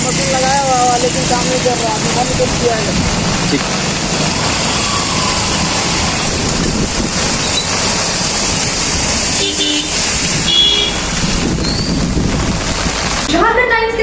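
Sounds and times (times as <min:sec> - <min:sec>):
rain: 0:00.0 - 0:14.0
running floodwater: 0:00.0 - 0:14.0
traffic on flooded road: 0:00.0 - 0:14.0
vehicle horn toots: 0:09.4 - 0:11.2.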